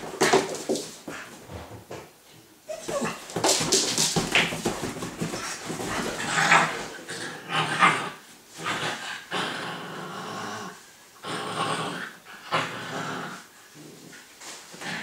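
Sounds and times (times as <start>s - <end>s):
scuffling on a sofa: 2.8s - 6.9s.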